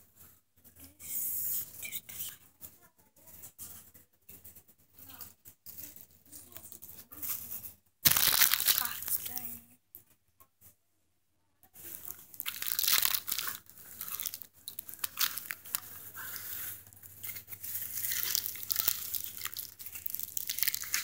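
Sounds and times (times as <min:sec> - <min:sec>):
plastic bag crinkling: 0:06.8 - 0:09.6, 0:11.8 - 0:21.0.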